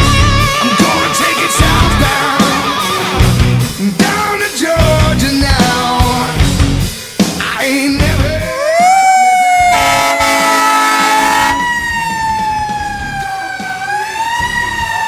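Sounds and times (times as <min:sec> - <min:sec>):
fire truck siren wailing: 0:08.5 - 0:15.0
air horn blast: 0:09.6 - 0:11.8.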